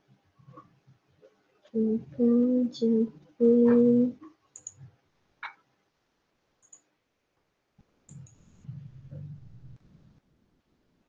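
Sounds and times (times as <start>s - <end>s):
woman humming: 1.8s - 4.2s
computer mouse clicks: 4.2s - 5.6s, 6.6s - 6.9s, 8.1s - 8.8s.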